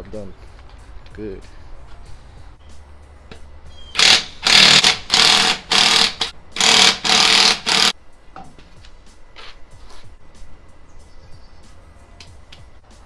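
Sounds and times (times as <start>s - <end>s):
impact wrench hammering: 4.0s - 8.0s.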